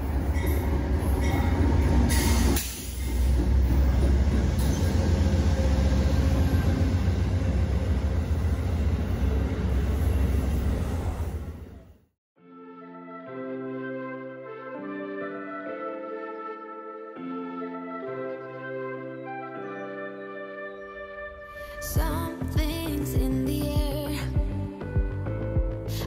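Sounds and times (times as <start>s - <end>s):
train rolling past: 0.0s - 12.0s.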